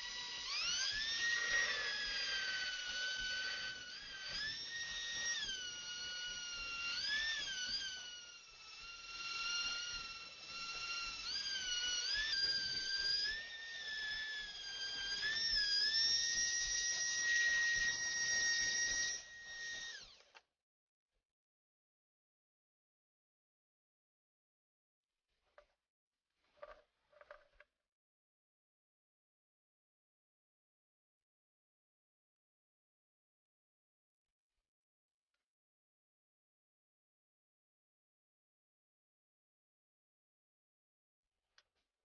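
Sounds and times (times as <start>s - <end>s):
rotary tool whine: 0.0s - 20.4s.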